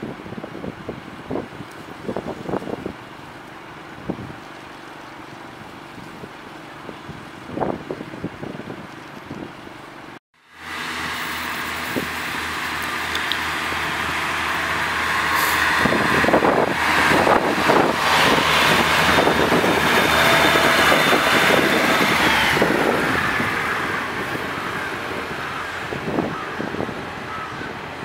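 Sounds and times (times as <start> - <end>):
diesel train engine whine: 9.1 - 28.0.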